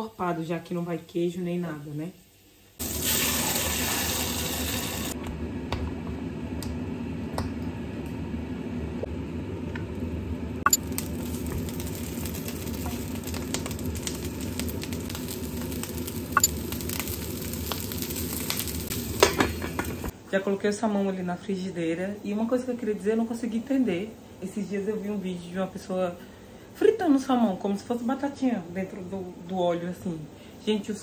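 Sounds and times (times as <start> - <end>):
food sizzling in frying pan: 1.6 - 5.2, 10.6 - 20.1.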